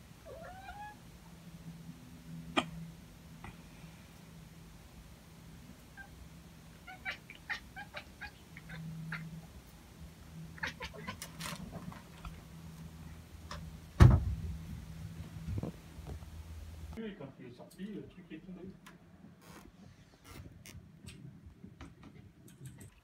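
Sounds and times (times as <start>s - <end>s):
heavy thump: 14.0s - 14.8s.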